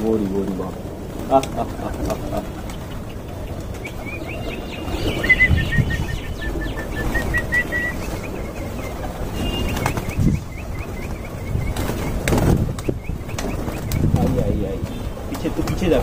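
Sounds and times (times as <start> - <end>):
pigeons flapping wings: 0.0 - 16.0
bird chirping high notes: 2.7 - 14.0.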